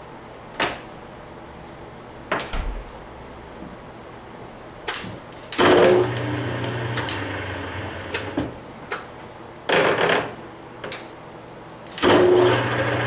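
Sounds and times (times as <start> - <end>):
lathe spindle humming: 5.6 - 8.3, 12.0 - 13.0
lathe spindle starting burst: 12.0 - 13.0.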